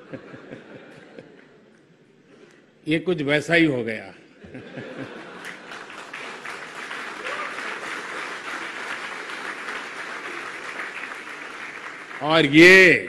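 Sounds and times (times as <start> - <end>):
audience applauding: 5.1 - 13.0.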